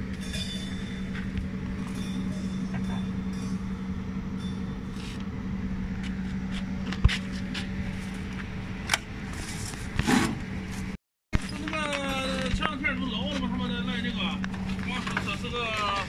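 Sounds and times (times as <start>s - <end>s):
steady low hum: 0.0s - 16.0s
bumps and scrape: 4.5s - 13.7s.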